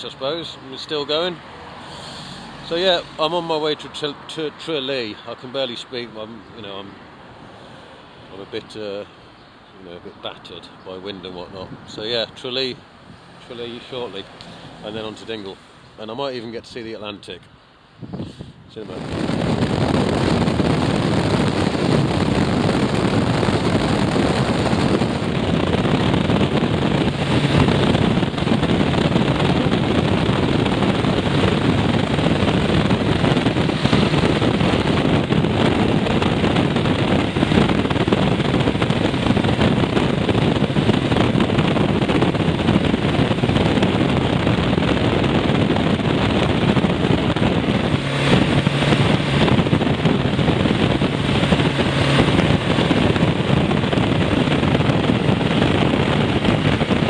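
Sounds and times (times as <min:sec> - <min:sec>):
wind rushing over microphone: 0:00.0 - 0:57.0
motorcycle engine: 0:19.4 - 0:57.0.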